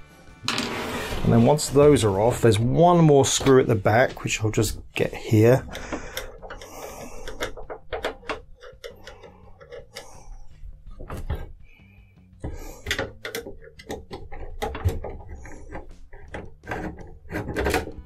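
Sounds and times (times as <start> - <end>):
screwdriver clicking on metal: 5.7 - 10.2.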